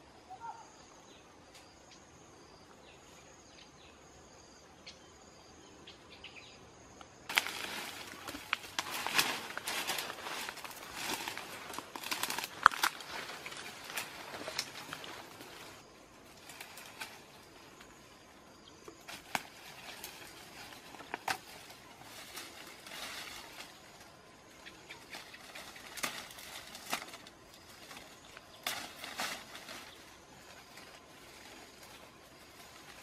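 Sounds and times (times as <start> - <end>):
leaves and twigs rustling: 7.0 - 33.0
twigs snapping: 7.3 - 18.0, 18.9 - 33.0.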